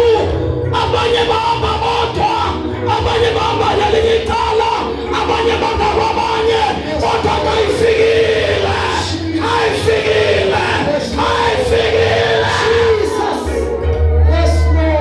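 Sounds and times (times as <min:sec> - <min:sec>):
music with low bass: 0:00.0 - 0:15.0
voices singing and chanting: 0:00.0 - 0:15.0.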